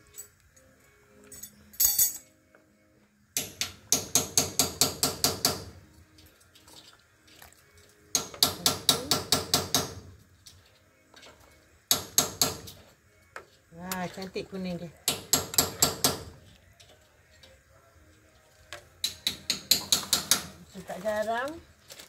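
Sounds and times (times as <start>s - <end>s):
carton knocking on pan: 3.4s - 5.8s, 8.2s - 10.1s.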